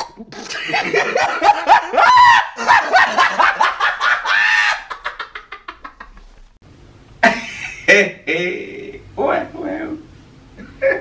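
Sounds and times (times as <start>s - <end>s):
man laughing hard: 0.2s - 6.3s, 7.2s - 8.6s.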